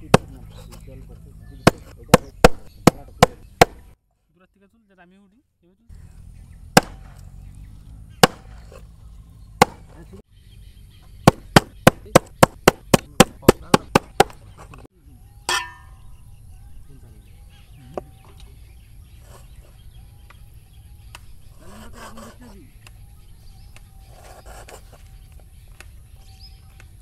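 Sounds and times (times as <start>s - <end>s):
knife chopping on wooden board: 9.6s - 9.9s.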